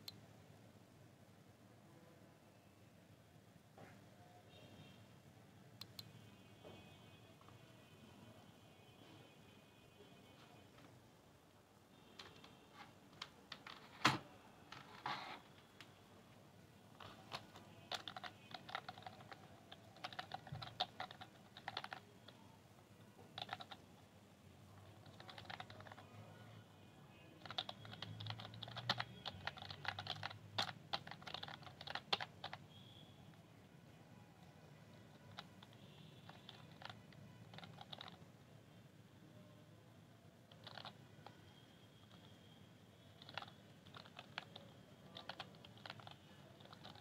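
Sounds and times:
typing on computer keyboard: 12.1s - 14.9s, 17.0s - 22.4s, 23.2s - 23.9s, 24.8s - 26.2s, 27.4s - 32.8s, 34.9s - 38.3s, 40.5s - 42.4s, 43.1s - 47.0s.

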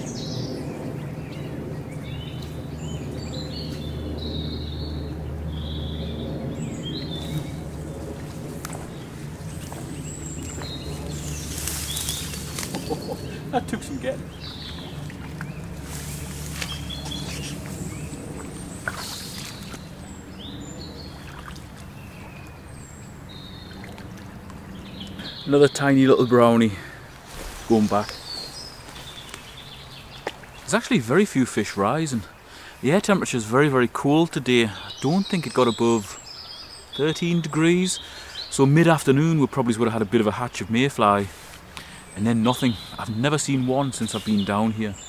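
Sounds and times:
steady low rumble: 0.0s - 30.2s
songbirds chirping and whistling: 0.0s - 45.0s
flowing river water: 5.3s - 44.6s.

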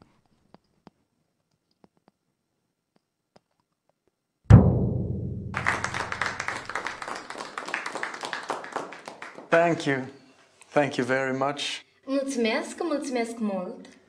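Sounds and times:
deep drum hit ringing: 4.5s - 6.4s
people clapping: 5.5s - 10.1s.

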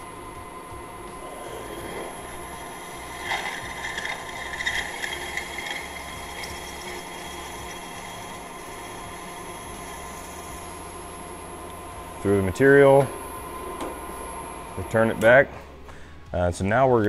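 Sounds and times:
drill press motor running: 0.0s - 15.8s
drill scratchy cutting into metal: 1.2s - 10.6s.

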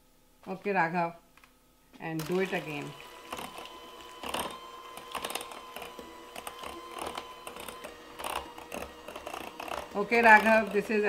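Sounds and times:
electric hand mixer whining: 2.2s - 11.0s
mixer beaters clattering in bowl: 2.2s - 11.0s.

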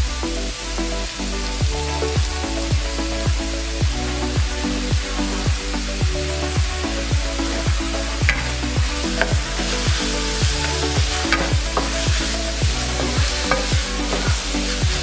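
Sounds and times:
background music with steady beat: 0.0s - 15.0s
spatula stirring and scraping: 8.3s - 15.0s
meat sizzling in a frying pan: 9.2s - 15.0s.

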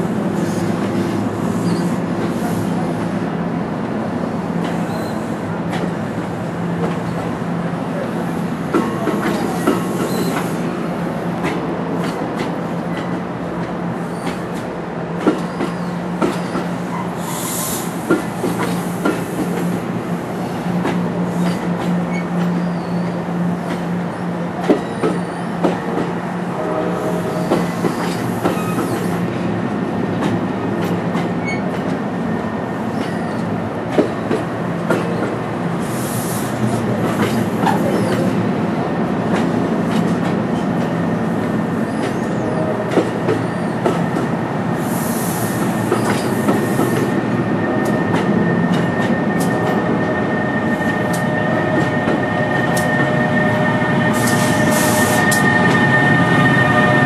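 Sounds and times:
electric locomotive whine: 0.0s - 57.0s
train rumble: 0.0s - 57.0s
train wheels clicking over rail joints: 18.0s - 19.8s, 45.6s - 47.2s
high hissing squeals: 44.8s - 57.0s.

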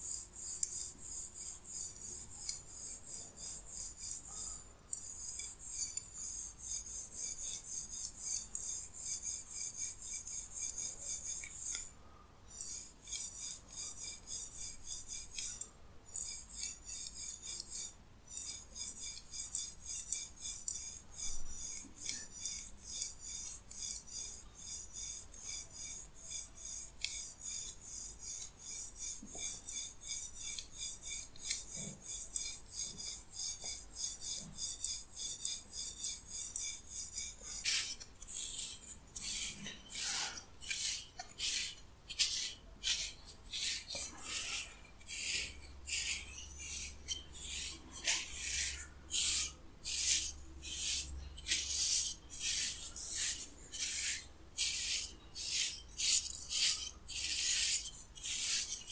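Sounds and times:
wire massager scratching hair: 0.0s - 11.9s, 12.6s - 58.9s
comb swishing through hair: 36.5s - 58.9s.

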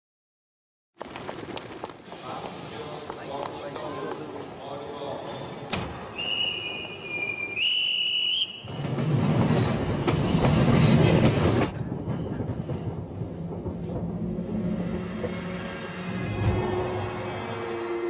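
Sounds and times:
train rumbling: 1.7s - 18.0s
high whistle: 6.1s - 8.8s.

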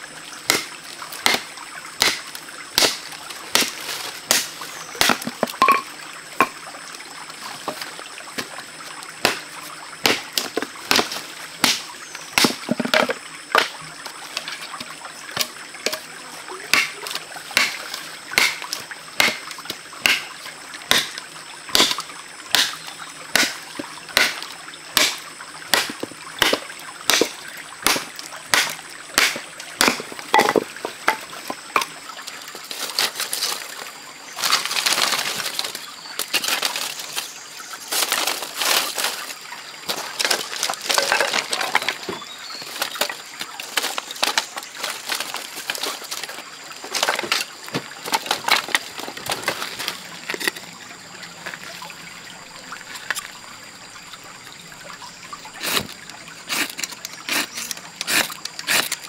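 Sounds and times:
bamboo strips rustling and clattering: 2.8s - 6.6s, 7.4s - 21.2s, 23.4s - 50.8s, 52.8s - 53.3s, 55.5s - 59.0s
stick knocking on bamboo pole: 5.0s - 6.6s, 12.4s - 13.7s.

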